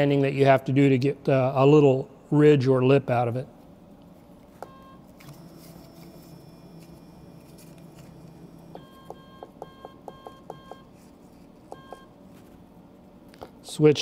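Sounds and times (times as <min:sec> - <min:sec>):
machine hum with high whine: 0:00.0 - 0:14.0
short keypad beeps: 0:04.6 - 0:05.0, 0:08.7 - 0:10.9, 0:11.7 - 0:12.1.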